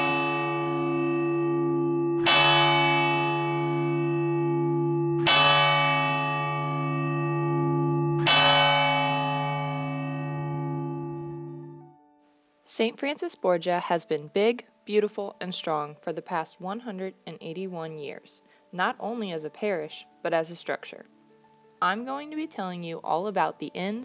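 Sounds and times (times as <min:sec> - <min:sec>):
church bell tolling: 0:00.0 - 0:12.1.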